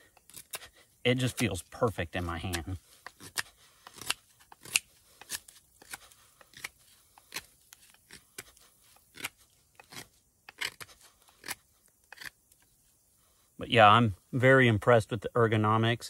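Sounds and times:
knife scraping wooden stick: 0:00.0 - 0:12.8.

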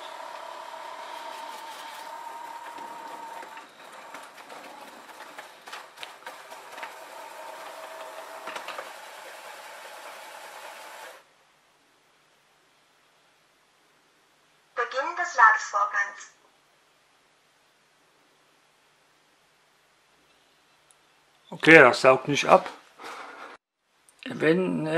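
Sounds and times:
robot vacuum motor hum: 0:00.0 - 0:11.2.

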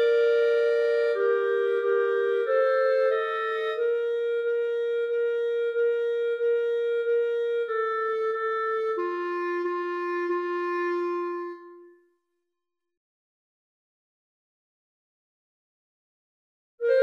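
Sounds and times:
clarinet sustained notes: 0:00.0 - 0:12.0.

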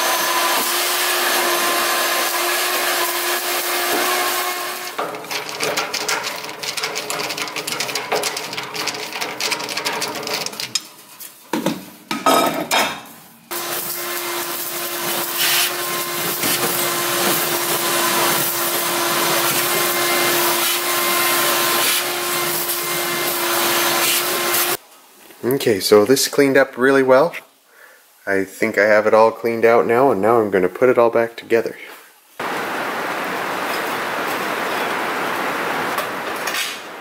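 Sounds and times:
vacuum cleaner running: 0:00.0 - 0:05.0, 0:13.5 - 0:24.8
soot rattling up hose: 0:00.0 - 0:11.5.

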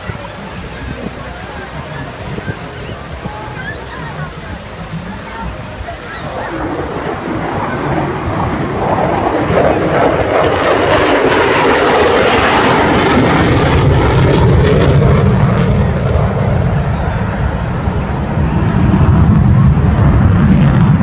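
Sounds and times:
fighter jet flying past: 0:06.0 - 0:21.0.

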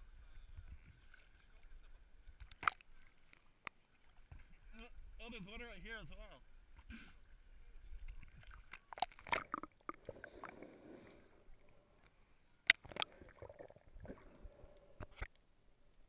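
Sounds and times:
water sloshing: 0:07.8 - 0:15.4.

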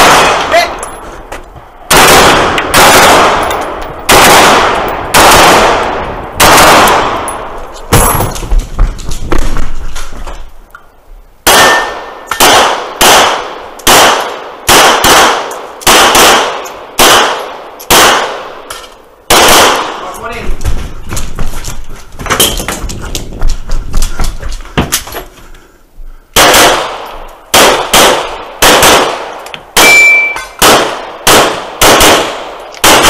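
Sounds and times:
rifle shots: 0:00.0 - 0:00.7, 0:01.9 - 0:08.4, 0:11.4 - 0:18.7, 0:19.3 - 0:20.1, 0:26.4 - 0:33.0
handgun shots: 0:01.9 - 0:05.8, 0:29.8 - 0:33.0.

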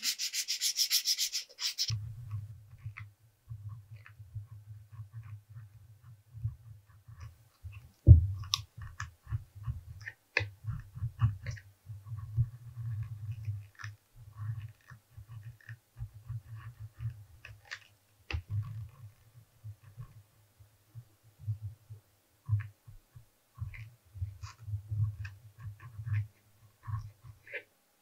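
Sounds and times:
thump: 0:08.1 - 0:08.4.

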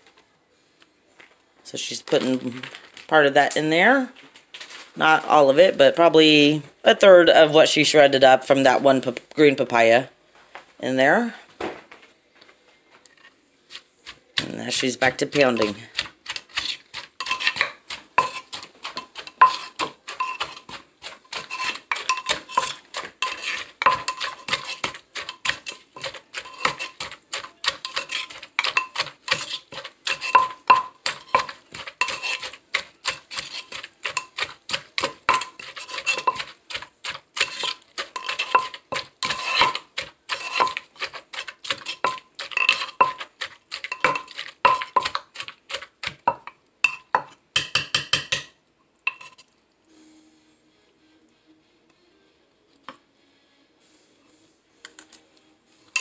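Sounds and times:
pestle pounding in clay mortar: 0:14.4 - 0:48.5
metal spoon clinking on mortar: 0:14.4 - 0:49.5.

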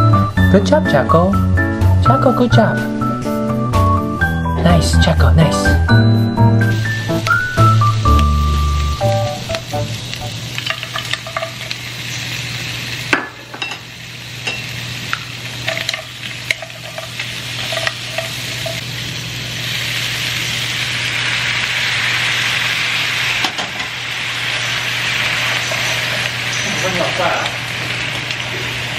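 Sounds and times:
seafood sizzling in a frying pan: 0:06.7 - 0:28.9.

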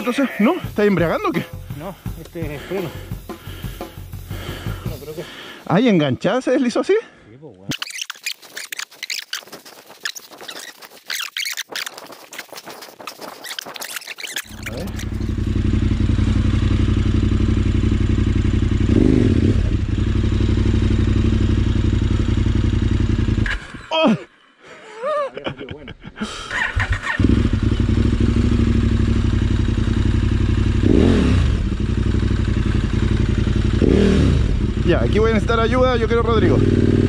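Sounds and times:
motorcycle engine idling: 0:00.0 - 0:05.6, 0:14.4 - 0:23.5, 0:26.6 - 0:37.0.

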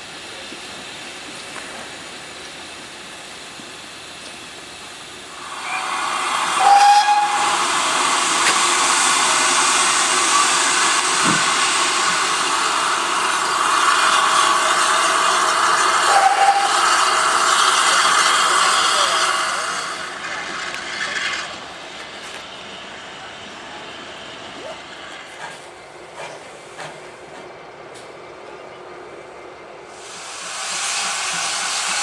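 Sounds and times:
steam locomotive hissing: 0:00.0 - 0:28.4, 0:29.1 - 0:32.0
short whistle-like tones: 0:05.6 - 0:06.0, 0:06.6 - 0:07.5.

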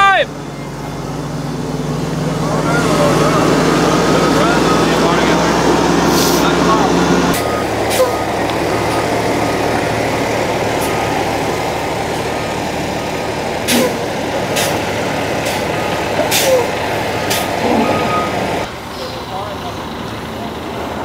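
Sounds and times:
diesel engine running: 0:00.0 - 0:21.0
short air hisses: 0:06.1 - 0:06.5.

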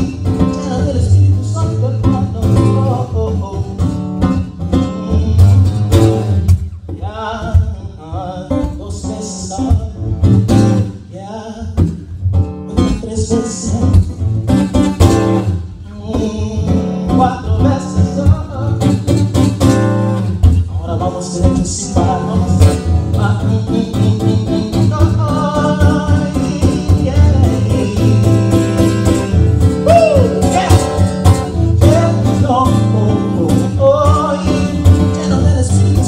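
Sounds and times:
person singing wordlessly: 0:00.0 - 0:04.0, 0:04.7 - 0:06.1, 0:15.8 - 0:19.6, 0:20.7 - 0:36.0
acoustic guitar rhythmic groove: 0:00.0 - 0:36.0.

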